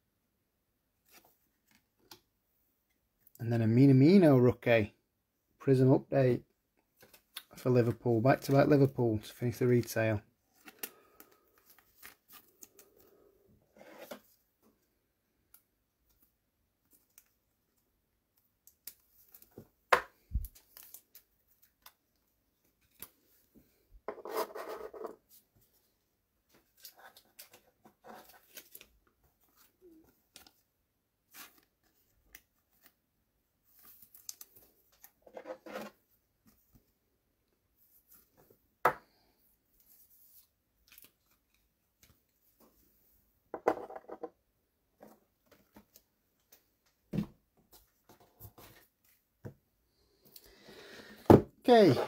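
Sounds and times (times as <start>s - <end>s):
cards and packaging rustling: 7.0s - 13.3s, 18.6s - 23.8s, 26.5s - 33.0s, 33.6s - 36.8s.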